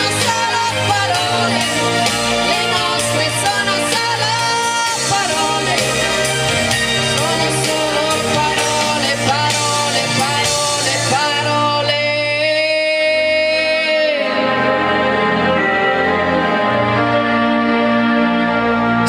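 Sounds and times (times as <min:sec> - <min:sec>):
woman singing into a microphone: 0:00.0 - 0:14.7
karaoke backing track: 0:00.0 - 0:19.0.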